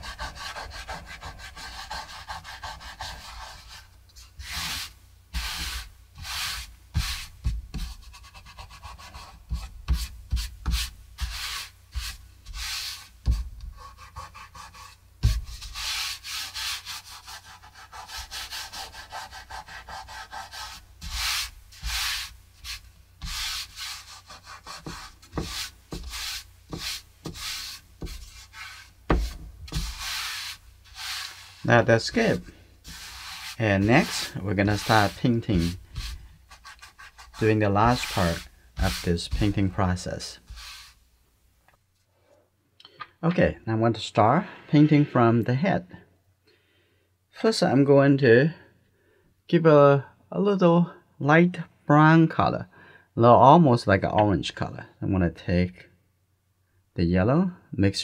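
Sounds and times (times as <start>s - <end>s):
fingers rubbing paper: 0.0s - 3.8s, 4.4s - 39.8s, 40.4s - 41.0s
sharp thumps: 29.1s - 30.2s.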